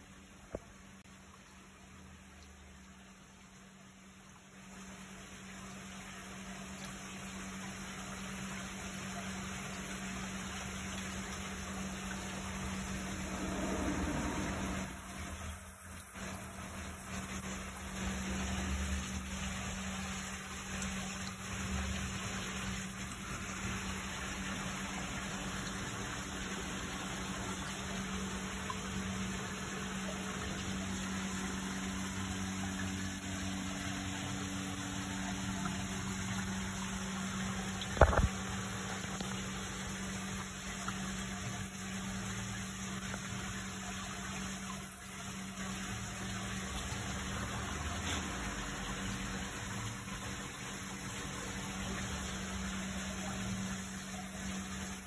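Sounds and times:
water running: 5.4 - 55.0
low hum: 9.1 - 44.8.

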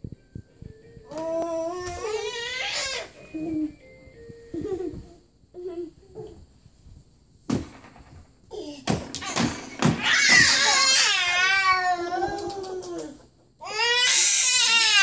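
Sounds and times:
toddler crying: 1.1 - 3.7, 10.0 - 15.0
children wrestling thumps: 7.5 - 11.1.

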